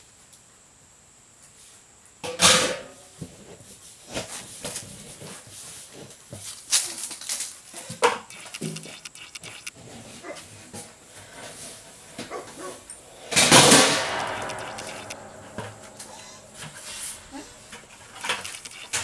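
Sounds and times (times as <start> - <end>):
metal cans and lids clanking: 13.2 - 19.0.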